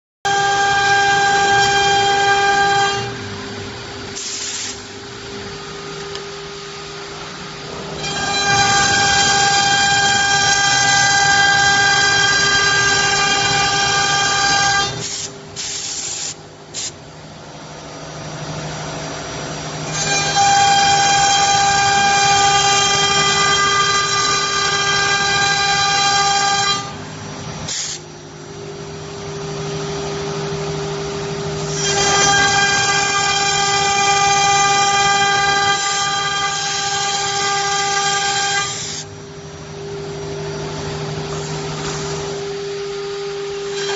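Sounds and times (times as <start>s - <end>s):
router bit screaming cutting wood: 0.3s - 3.2s, 7.9s - 15.2s, 19.8s - 27.0s, 31.5s - 39.1s
router spindle whining: 5.6s - 15.1s, 19.6s - 43.9s.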